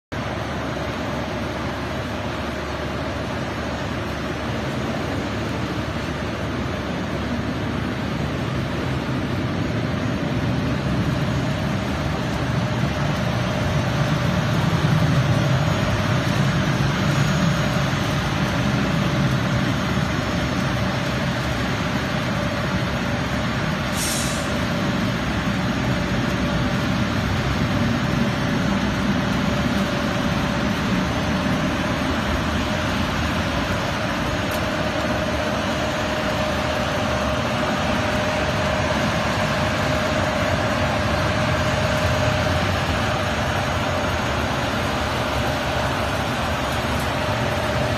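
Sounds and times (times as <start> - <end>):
machine whirring and humming: 0.2 - 47.9
brief hiss: 23.9 - 24.5.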